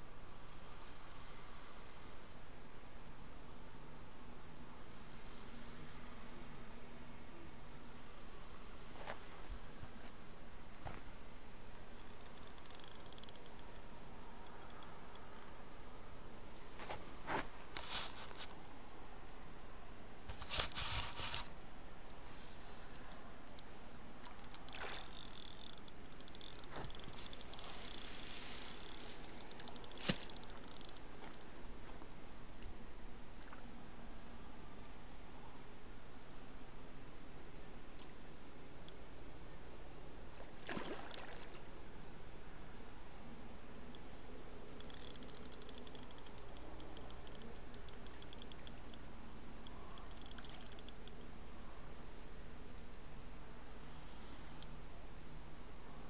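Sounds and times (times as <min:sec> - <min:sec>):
fishing reel ticking rapidly: 0:24.4 - 0:31.0, 0:44.8 - 0:48.7.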